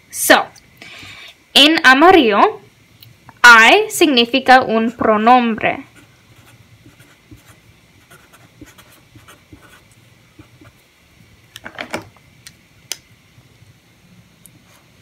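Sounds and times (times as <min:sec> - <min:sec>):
marker scratching on paper: 0:05.9 - 0:10.8.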